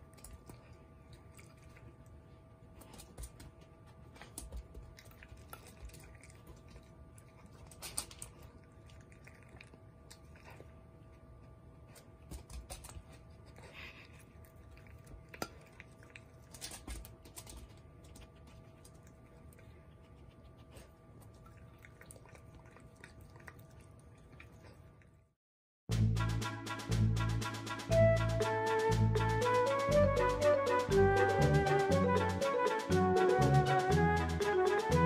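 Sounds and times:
puppy crunching dry kibble: 0:00.0 - 0:25.1.

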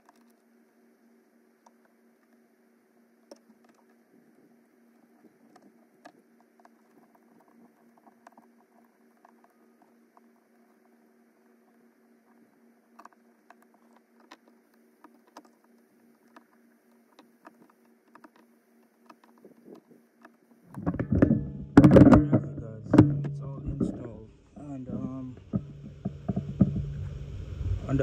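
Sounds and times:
steady low hum: 0:00.0 - 0:28.0
faint clicks and taps: 0:03.2 - 0:24.1.

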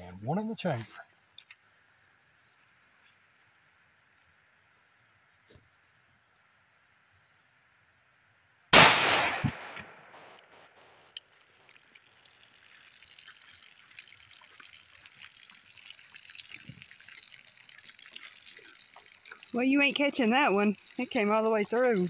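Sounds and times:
pistol shot: 0:08.8 - 0:10.4
water splashing and trickling: 0:09.4 - 0:22.0.

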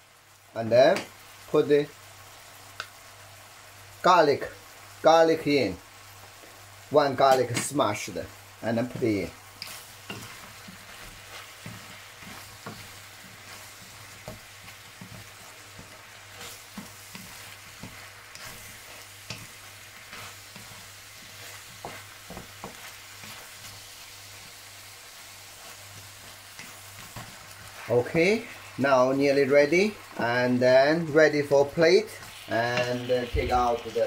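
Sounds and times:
food sizzling in hot oil: 0:00.0 - 0:34.0
wooden spatula scraping wok: 0:08.6 - 0:34.0.

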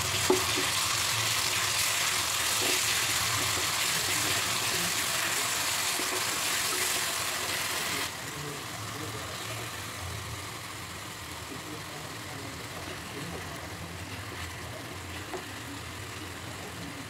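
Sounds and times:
paste sizzling in hot oil: 0:00.0 - 0:17.0
spatula knocking on pan: 0:00.1 - 0:00.8.

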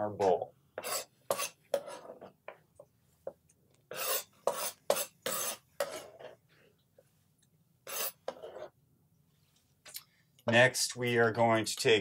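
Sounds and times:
knife cutting on plastic board: 0:00.8 - 0:02.3, 0:03.9 - 0:06.4, 0:07.8 - 0:08.7.

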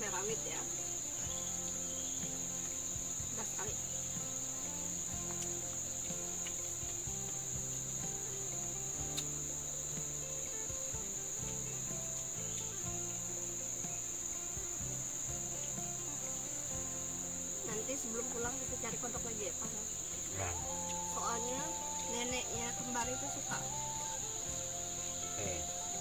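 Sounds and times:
forest insects trilling: 0:00.0 - 0:26.0.

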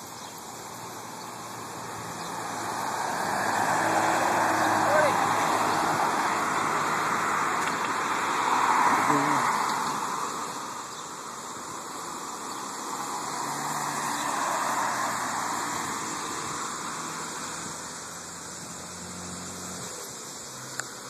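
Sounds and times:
vehicle driving past: 0:01.4 - 0:10.7, 0:12.6 - 0:19.9.

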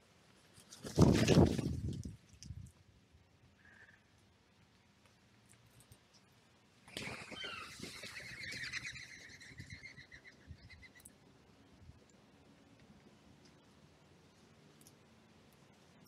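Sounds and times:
flurry of bird wingbeats: 0:00.6 - 0:02.2, 0:06.9 - 0:09.7.

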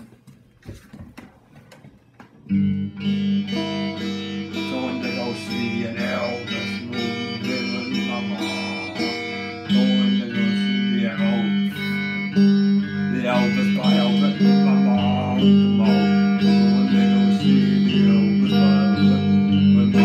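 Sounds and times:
electric guitar music: 0:02.4 - 0:20.0
man singing: 0:03.5 - 0:12.2, 0:13.1 - 0:20.0.

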